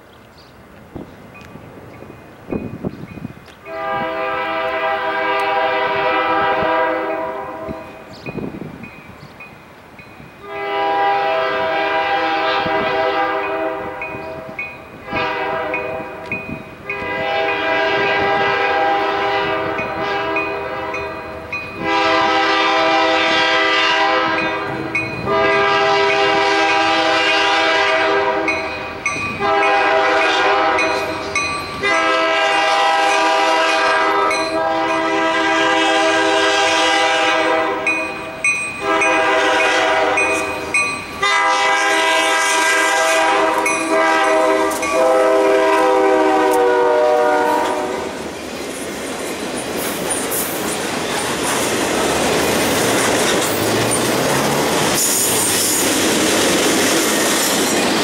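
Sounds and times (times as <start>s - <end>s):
locomotive air horn blasts: 3.6s - 8.0s, 10.4s - 21.2s, 21.8s - 38.2s, 38.8s - 48.2s.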